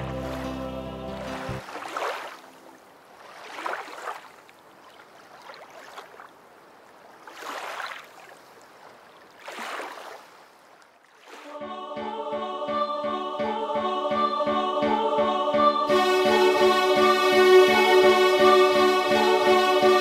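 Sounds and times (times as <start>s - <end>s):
faint rushing swells of noise: 11.5s - 20.0s.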